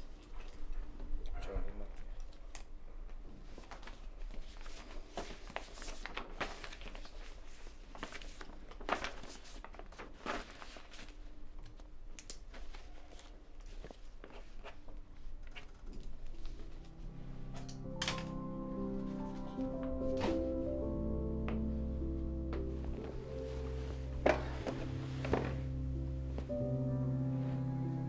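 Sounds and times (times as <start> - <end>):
gear and papers rustling: 1.8 - 20.8, 22.6 - 26.6
soft music tones: 15.8 - 28.0.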